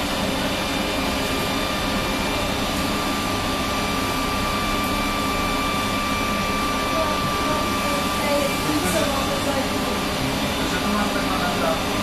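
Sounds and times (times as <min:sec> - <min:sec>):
constant high whine: 0:00.0 - 0:12.0.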